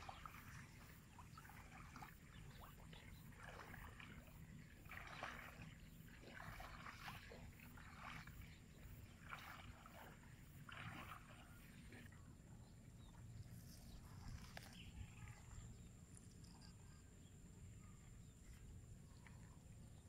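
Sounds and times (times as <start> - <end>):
footsteps wading through water: 0.0 - 15.9.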